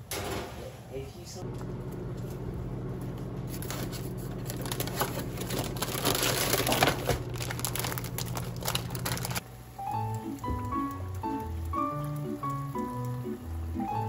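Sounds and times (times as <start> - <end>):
steady low hum: 1.4 - 9.8
plastic bag crinkling: 3.5 - 9.4.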